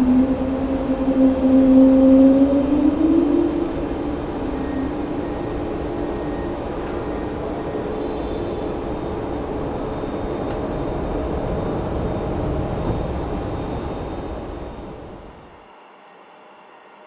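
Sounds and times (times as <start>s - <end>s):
jet engines at takeoff thrust: 0.0s - 17.0s.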